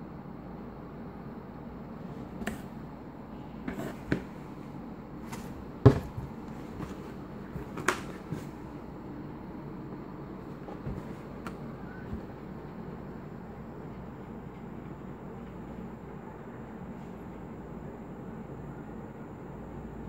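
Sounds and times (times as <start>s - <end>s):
low background noise: 0.0s - 20.0s
knocks and taps on cardboard box: 5.3s - 7.0s.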